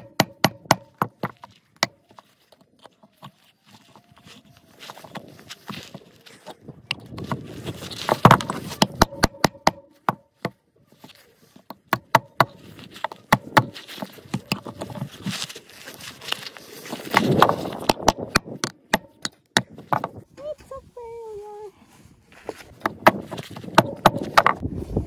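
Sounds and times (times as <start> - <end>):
hammer knocking nail into wood: 0.0 - 1.3, 8.3 - 10.6.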